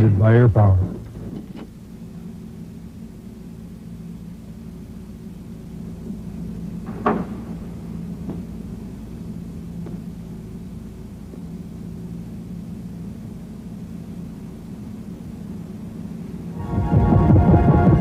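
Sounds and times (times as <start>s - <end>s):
low hangar hum: 0.0s - 18.0s
sharp knocks: 6.9s - 7.5s.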